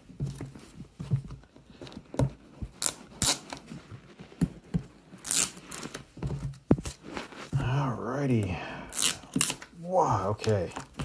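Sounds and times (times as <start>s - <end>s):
package rustling and scraping: 1.8s - 7.6s
tape ripping off cardboard: 2.7s - 3.7s, 5.2s - 7.2s, 8.9s - 9.8s.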